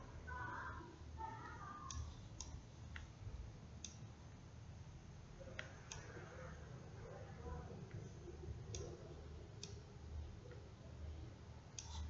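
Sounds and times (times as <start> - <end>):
low steady hum: 0.0 - 12.0
computer mouse clicking: 1.4 - 3.1, 9.6 - 9.8, 11.7 - 12.0.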